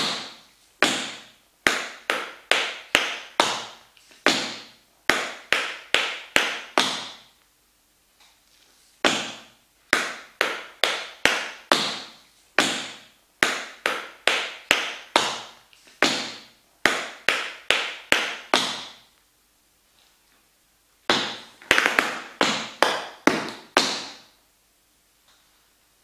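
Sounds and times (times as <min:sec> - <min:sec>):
tap shoes striking wooden floor: 0:00.0 - 0:07.3, 0:09.0 - 0:19.0, 0:21.1 - 0:24.3.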